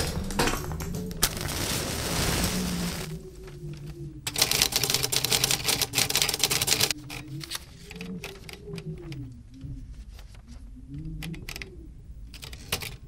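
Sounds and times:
hiss: 0:01.4 - 0:03.2
rapid typewriter-like clicks: 0:04.3 - 0:07.2.

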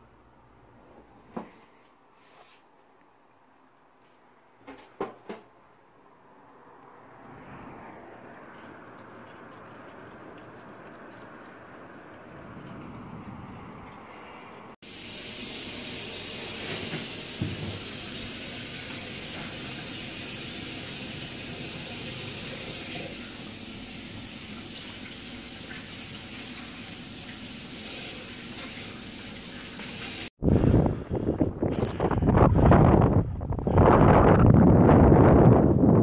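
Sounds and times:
oven hissing: 0:14.9 - 0:24.5.

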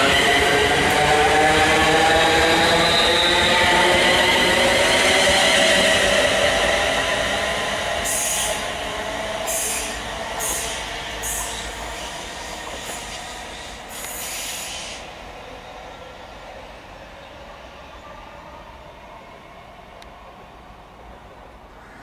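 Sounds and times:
electric train traction whine: 0:00.0 - 0:14.8
wheel hisses and squeals: 0:08.0 - 0:08.7, 0:09.5 - 0:15.2.

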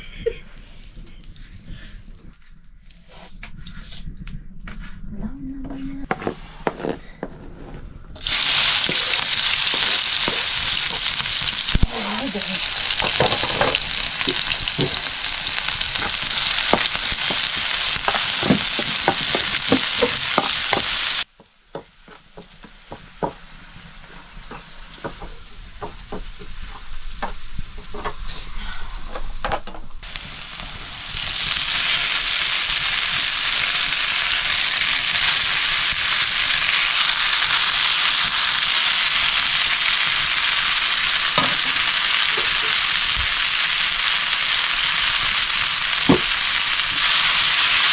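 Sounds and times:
food sizzling in oil: 0:08.2 - 0:28.3, 0:30.0 - 0:47.9.

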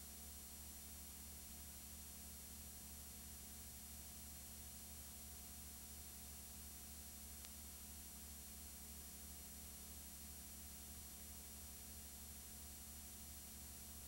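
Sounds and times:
low hum and hiss: 0:00.0 - 0:14.0
faint click: 0:07.4 - 0:07.7.

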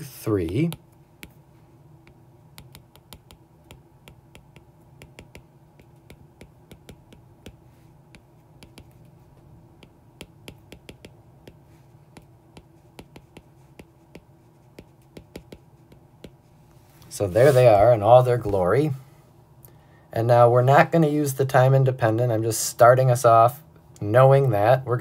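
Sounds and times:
faint steady hum: 0:00.0 - 0:25.0
stylus tapping on glass screen: 0:02.0 - 0:09.1, 0:09.8 - 0:16.4.

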